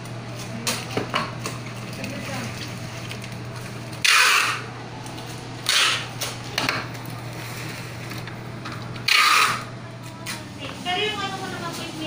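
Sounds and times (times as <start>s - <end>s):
steady low hum: 0.0s - 12.0s
packing tape pulled off roll: 9.0s - 9.7s.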